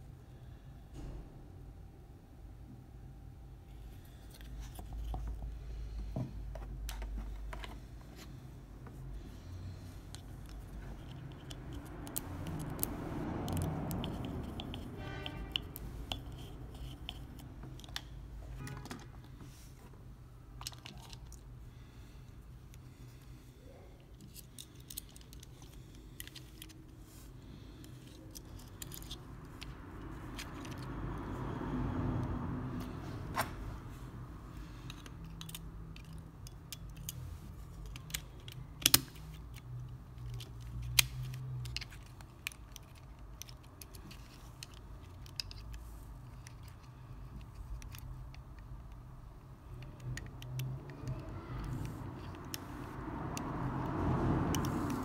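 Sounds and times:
plastic clicks and scraping: 10.1s - 19.4s, 34.8s - 53.9s.

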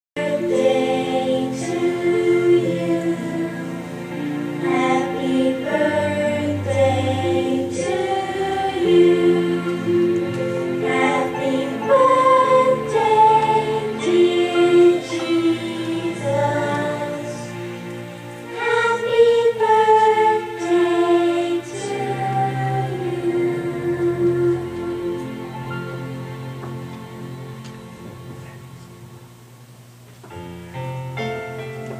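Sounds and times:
group of voices singing gospel: 0.2s - 25.6s
keyboard and bass: 0.2s - 29.5s.

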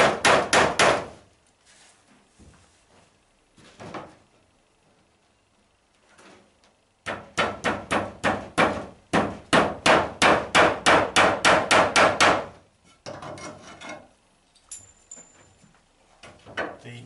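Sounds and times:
hammer driving a nail into wood: 0.0s - 1.2s, 7.0s - 13.2s.

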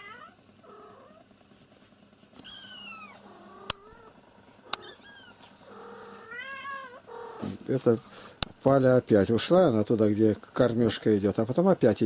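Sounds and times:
cat meowing: 0.0s - 1.2s, 2.4s - 7.5s.

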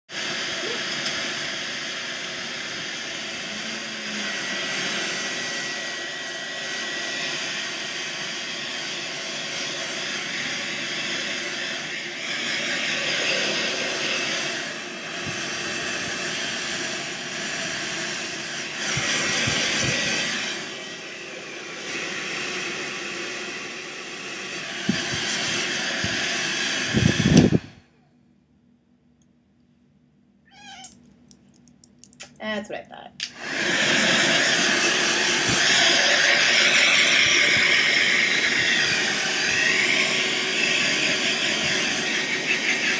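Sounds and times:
hair dryer running: 0.1s - 27.9s, 33.2s - 42.9s.

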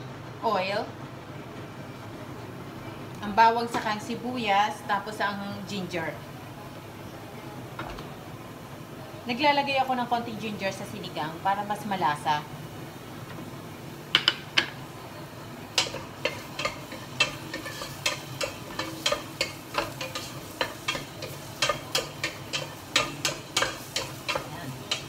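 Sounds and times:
light sizzle: 0.0s - 25.0s
wooden spatula scraping pot: 15.8s - 25.0s.

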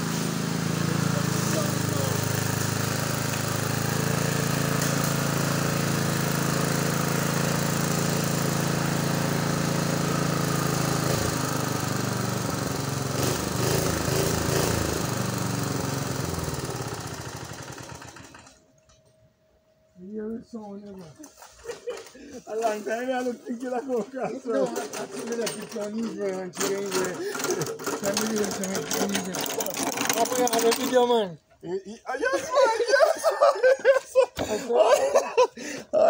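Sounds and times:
lawn mower engine running: 0.0s - 18.7s, 24.4s - 31.3s.

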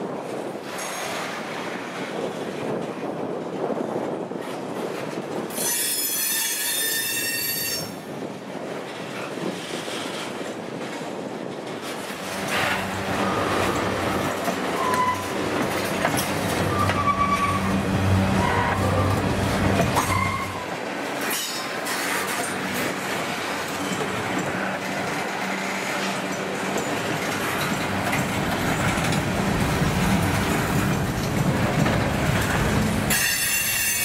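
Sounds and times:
freight train wheels on rails: 0.0s - 34.0s
high-pitched wheel squeal: 5.6s - 8.0s, 14.7s - 15.4s, 16.6s - 19.3s, 20.0s - 20.7s.

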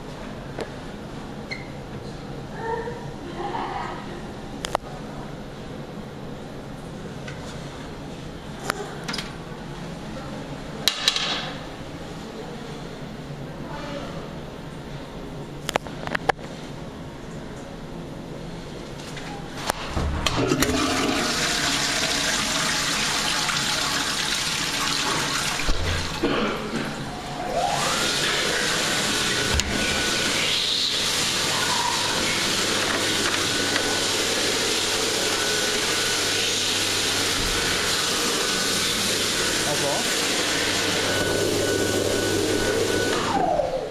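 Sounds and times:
toilet flush water rushing: 20.2s - 43.9s.

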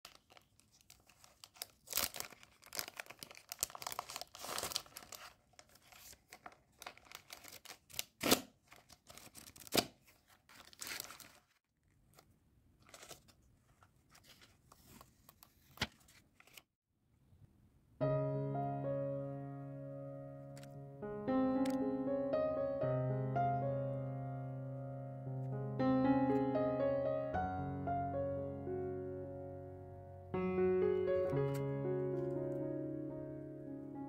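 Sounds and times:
plastic wrapping crinkling: 0.0s - 16.7s
piano music: 18.0s - 34.0s.

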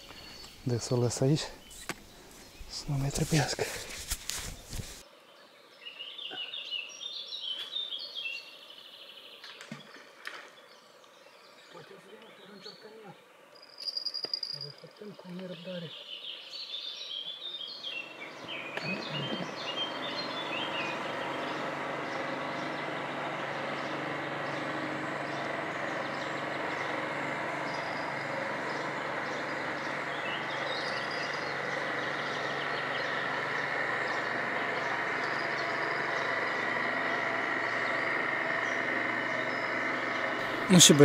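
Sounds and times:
birds chirping: 0.0s - 41.0s
motor engine running: 17.6s - 41.0s.

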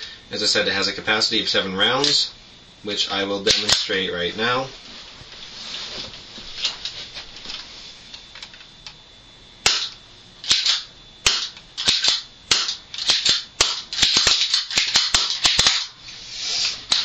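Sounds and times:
airsoft pistol cocking and firing: 9.6s - 15.9s.

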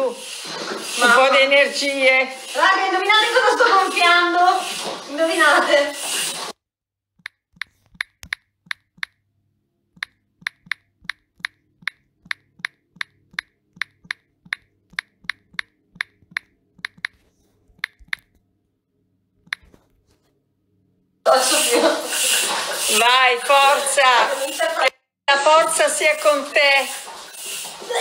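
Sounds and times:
phone keyboard key clicks: 7.2s - 9.2s, 10.0s - 17.2s, 17.8s - 18.4s.

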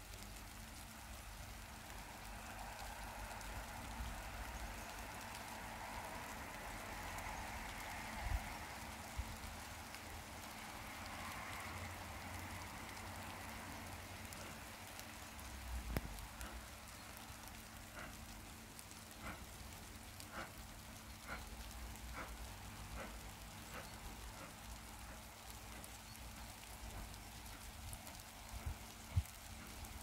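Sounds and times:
steady steam hiss: 0.0s - 30.0s
steam locomotive exhaust chuffs: 14.3s - 27.7s.

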